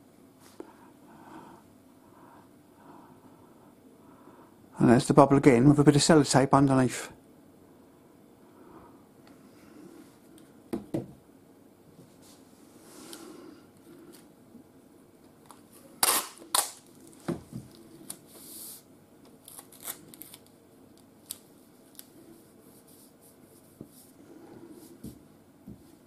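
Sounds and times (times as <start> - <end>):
tape pulled off a roll: 15.5 - 18.8.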